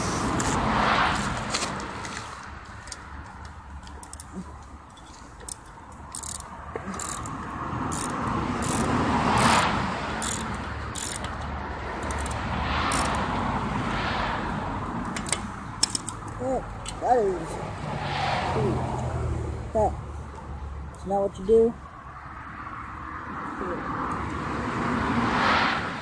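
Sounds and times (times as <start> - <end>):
road traffic passing: 0.0 - 26.0
hand tools clicking and tapping: 1.2 - 9.6, 10.2 - 13.3, 15.0 - 17.0.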